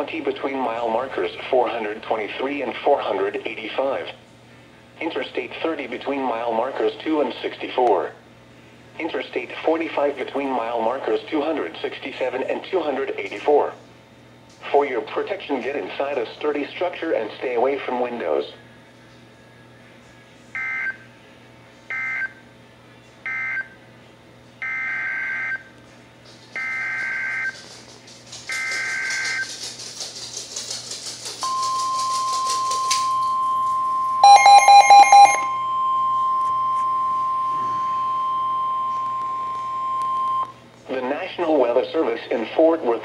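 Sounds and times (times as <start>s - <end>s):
steady warning alarm tone: 26.6s - 27.6s, 28.5s - 29.5s, 31.4s - 40.5s.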